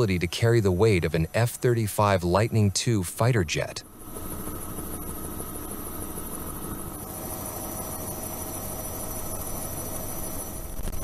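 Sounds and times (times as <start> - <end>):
helicopter rotor and turbine drone: 0.0 - 11.0.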